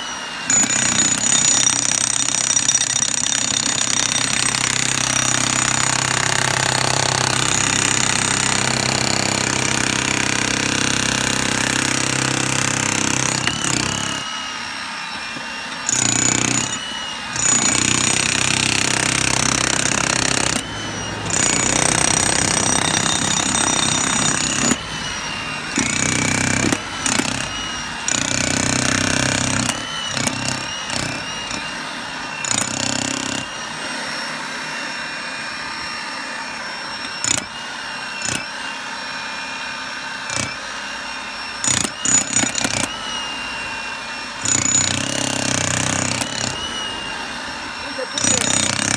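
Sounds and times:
high motor whine: 0:00.0 - 0:01.8, 0:02.7 - 0:48.9
electric breaker hammering stony ground: 0:00.0 - 0:48.9.

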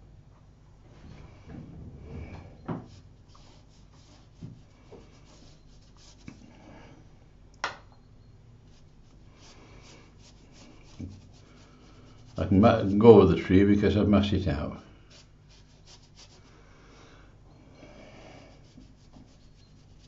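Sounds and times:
paintbrush scrubbing on paper: 0:02.9 - 0:06.4, 0:08.7 - 0:13.6, 0:15.1 - 0:16.6, 0:18.5 - 0:20.0.

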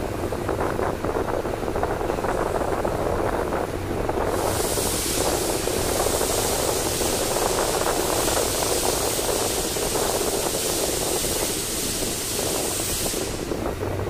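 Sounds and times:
train wheels rattling on rails: 0:00.0 - 0:14.0
steady hiss: 0:04.1 - 0:14.0.

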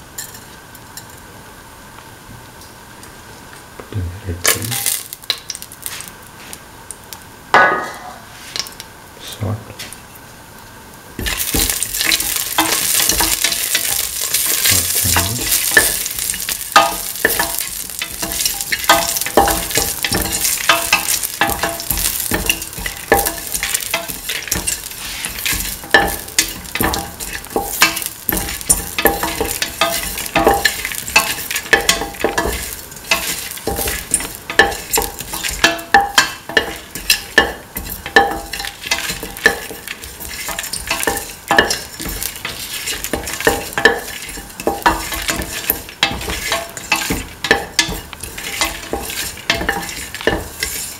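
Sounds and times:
spices sizzling in hot oil: 0:04.4 - 0:07.6, 0:08.2 - 0:09.3, 0:09.9 - 0:50.9
spatula scraping and tapping pan: 0:11.2 - 0:50.9.

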